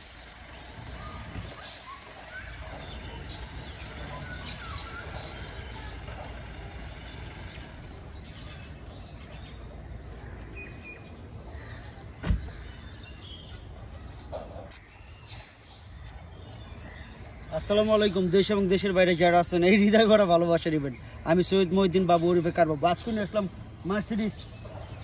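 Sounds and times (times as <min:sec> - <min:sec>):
birds chirping: 0:00.0 - 0:25.0
car door shutting with a thud: 0:12.2 - 0:12.7.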